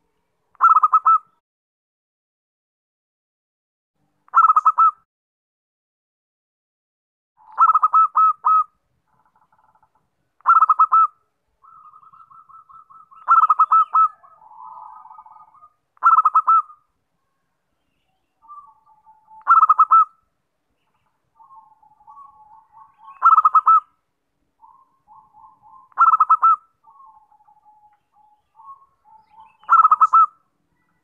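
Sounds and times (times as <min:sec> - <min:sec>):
dove cooing: 0:00.6 - 0:01.3, 0:07.4 - 0:08.7, 0:10.4 - 0:16.8, 0:18.4 - 0:20.1, 0:21.4 - 0:23.9, 0:24.6 - 0:30.4.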